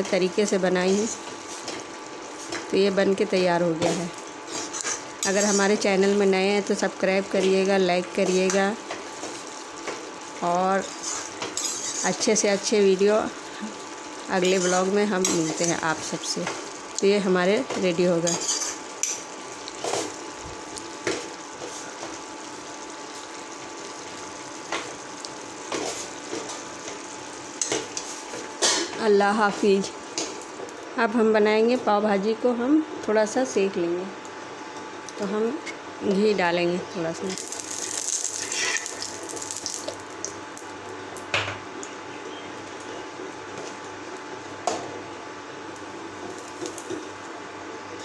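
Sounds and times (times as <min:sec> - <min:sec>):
food sizzling in a metal pan: 0:00.0 - 0:30.7, 0:37.1 - 0:40.8, 0:45.8 - 0:47.2
metal spoon scraping a pan: 0:04.5 - 0:05.8, 0:10.8 - 0:12.3, 0:14.4 - 0:15.8, 0:18.3 - 0:19.2, 0:38.4 - 0:39.0.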